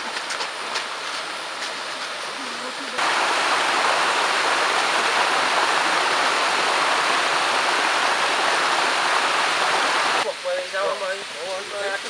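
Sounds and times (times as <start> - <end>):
stream rushing over rocks: 3.0 - 12.0.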